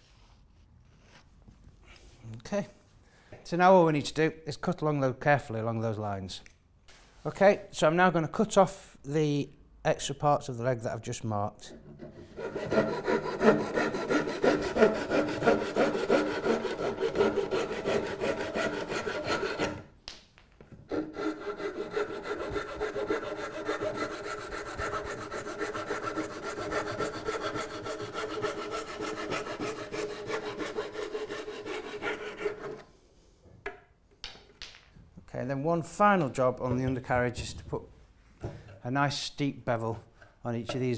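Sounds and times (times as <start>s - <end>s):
hand saw cutting wood: 11.7s - 19.9s, 20.9s - 32.9s.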